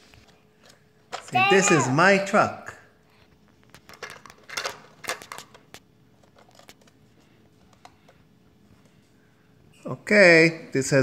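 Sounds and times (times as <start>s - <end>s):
plastic toy clicks and clatter: 3.7s - 6.9s.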